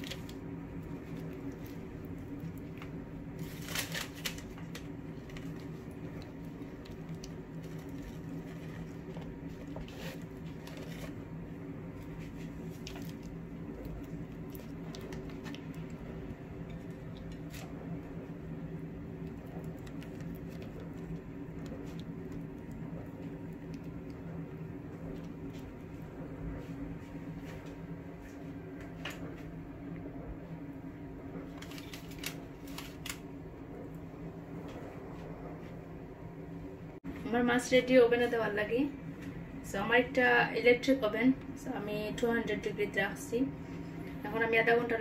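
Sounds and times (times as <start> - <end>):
wet squishing: 0.0 - 11.3, 12.0 - 18.2, 18.8 - 26.0
steady low hum: 0.0 - 45.0.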